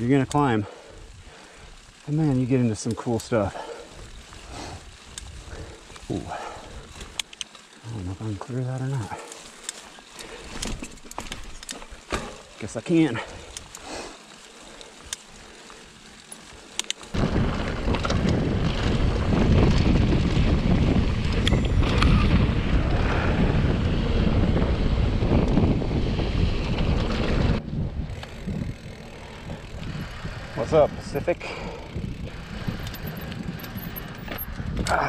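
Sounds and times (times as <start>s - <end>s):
bike tyres rumbling on gravel: 0.0s - 35.0s
sharp clicks: 5.9s - 7.7s, 16.3s - 17.2s
wind rushing over microphone: 17.1s - 35.0s.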